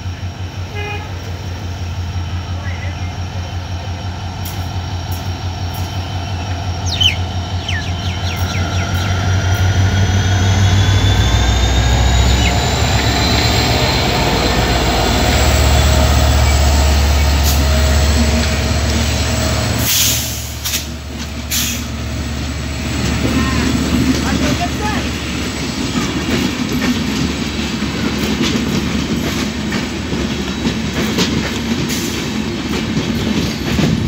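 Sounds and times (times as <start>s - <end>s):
locomotive engine throbbing: 0.0s - 34.0s
train coaches rolling by: 0.0s - 34.0s
wheels clicking on rails: 22.5s - 34.0s.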